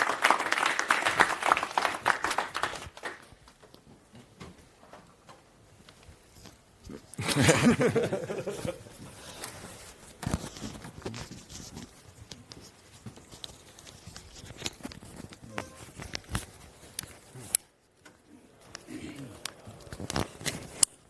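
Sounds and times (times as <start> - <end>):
close rubbing and rustling: 8.4 - 18.0.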